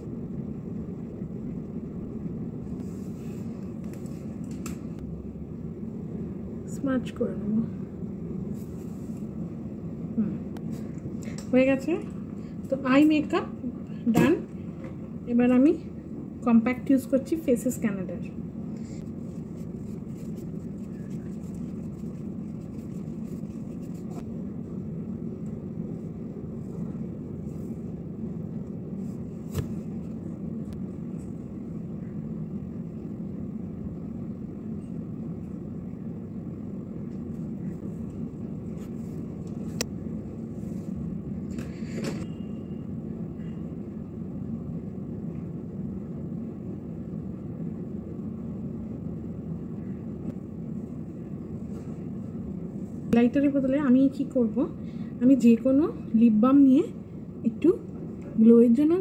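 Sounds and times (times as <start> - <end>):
low background rumble: 0.0 - 41.5.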